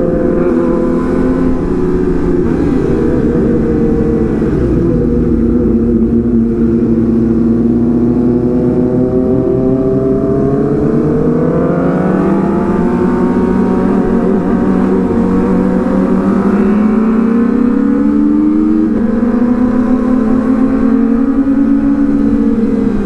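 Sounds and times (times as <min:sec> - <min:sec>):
motorcycle engine accelerating: 0:00.0 - 0:23.0.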